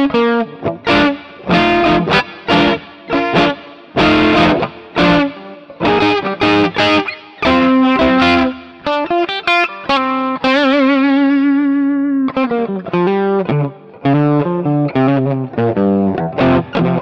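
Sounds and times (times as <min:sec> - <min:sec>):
electric guitar with tremolo: 0:00.0 - 0:17.0.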